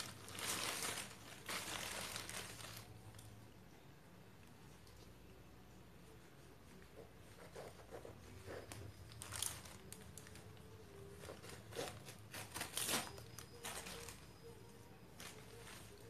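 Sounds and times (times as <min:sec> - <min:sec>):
paper tearing and crinkling: 0:00.0 - 0:03.0, 0:11.1 - 0:14.3.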